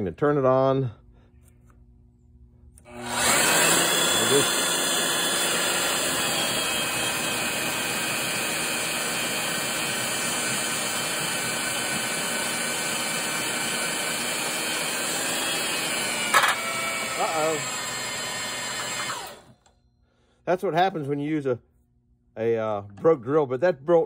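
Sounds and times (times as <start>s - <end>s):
drill press motor whining: 2.8s - 19.8s.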